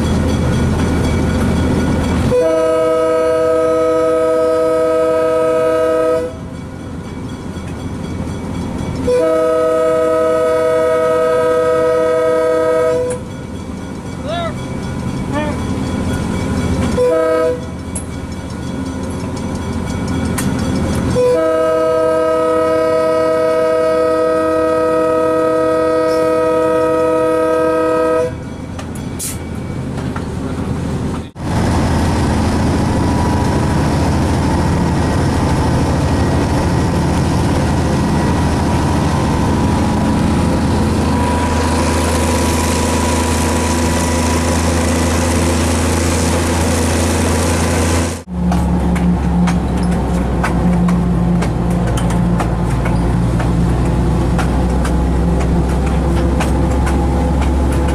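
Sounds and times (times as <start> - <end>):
train wheels on rails: 0.0 - 57.9
locomotive air horn: 2.3 - 6.5, 9.0 - 13.3, 16.9 - 17.8, 21.1 - 28.4.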